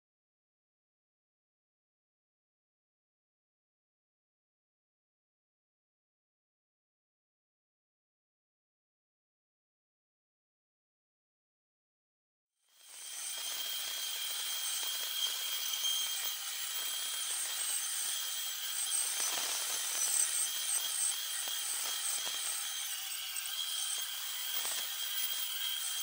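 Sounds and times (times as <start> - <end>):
bandsaw high-pitched whine: 12.7 - 26.0
saw blade hissing in wood: 12.9 - 26.0.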